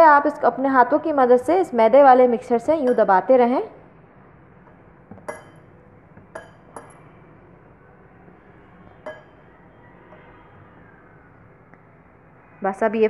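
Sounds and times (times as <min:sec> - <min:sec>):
bangles clinking on glass bowl: 0:05.2 - 0:05.7.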